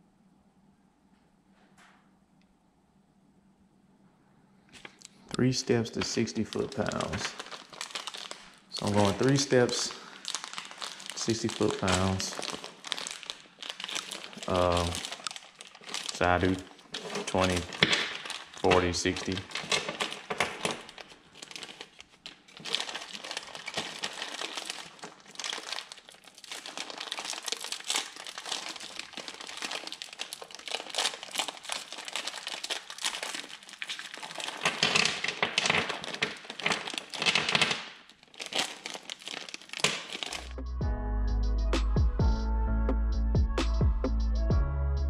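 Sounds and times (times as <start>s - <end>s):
wrapping crinkling: 4.8s - 40.5s
music with heavy bass: 40.5s - 45.0s.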